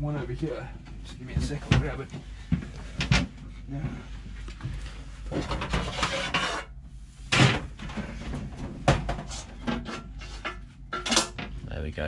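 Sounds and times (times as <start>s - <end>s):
rustling and scraping of parts: 0.1s - 11.7s.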